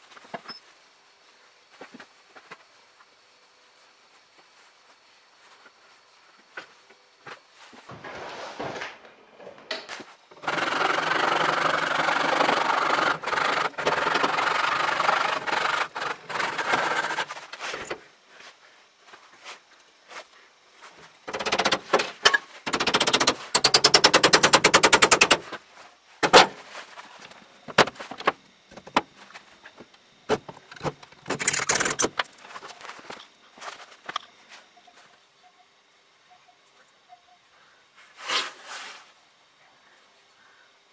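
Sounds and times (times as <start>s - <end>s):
steady machine noise: 10.2s - 19.2s, 20.1s - 35.3s.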